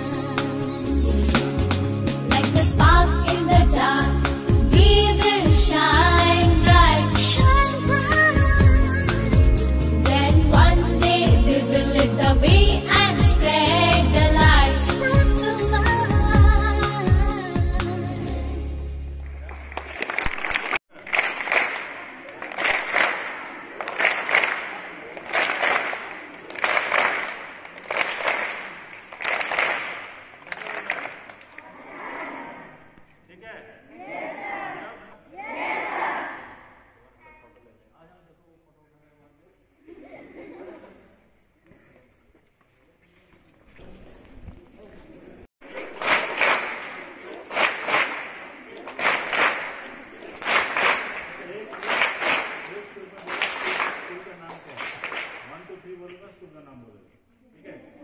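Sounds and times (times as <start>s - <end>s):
crowd clapping in rhythm: 19.1s - 31.8s, 45.6s - 55.8s.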